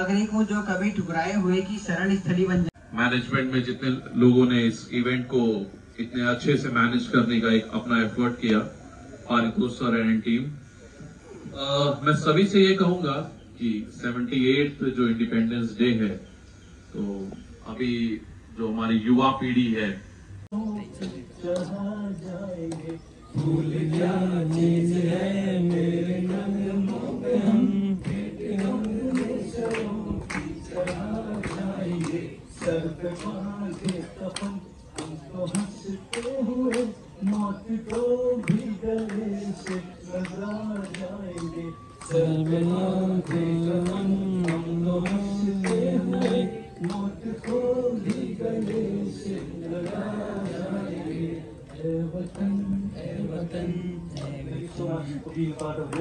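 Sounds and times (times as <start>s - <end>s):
man singing into microphone: 20.5s - 50.8s.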